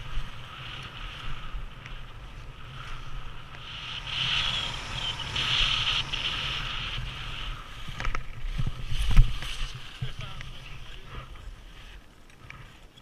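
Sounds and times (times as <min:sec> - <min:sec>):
skis scraping over snow: 0:00.0 - 0:13.0
wind rumbling on microphone: 0:00.0 - 0:13.0.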